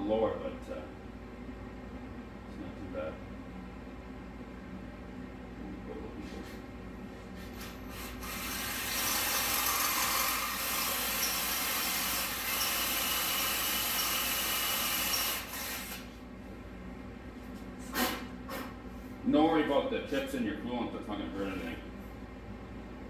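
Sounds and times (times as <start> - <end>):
cordless drill boring metal: 8.0 - 16.1.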